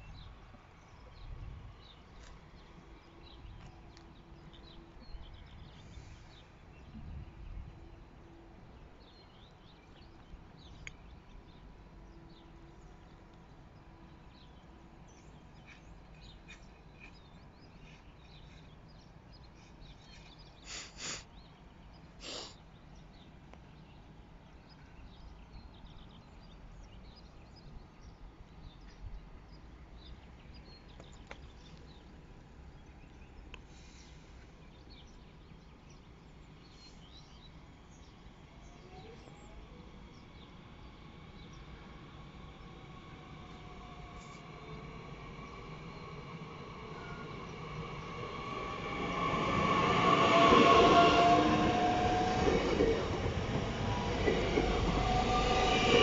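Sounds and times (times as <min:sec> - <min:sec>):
low wind rumble: 0:00.0 - 0:20.5, 0:34.5 - 0:56.0
small birds chirping: 0:09.0 - 0:56.0.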